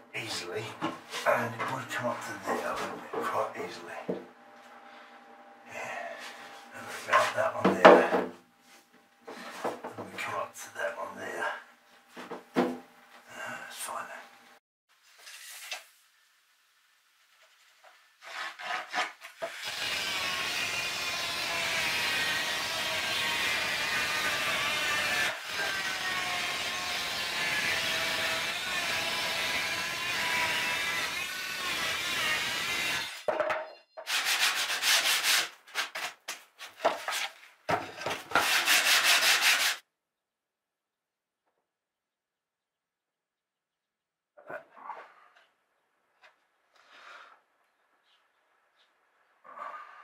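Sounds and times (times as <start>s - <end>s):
scraping on plywood board: 9.3s - 10.0s, 18.2s - 19.5s, 34.0s - 39.8s
circular saw cutting plywood: 18.2s - 33.3s, 34.0s - 36.2s, 37.7s - 39.8s.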